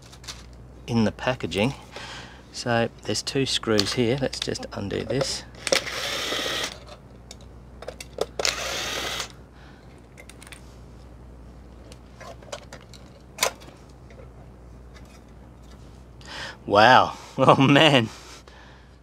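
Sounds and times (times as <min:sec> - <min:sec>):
cordless drill running: 0:05.6 - 0:06.8, 0:08.4 - 0:09.4.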